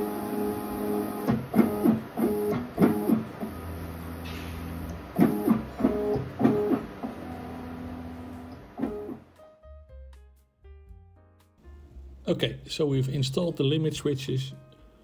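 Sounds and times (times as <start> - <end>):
low motor hum: 3.1 - 8.8.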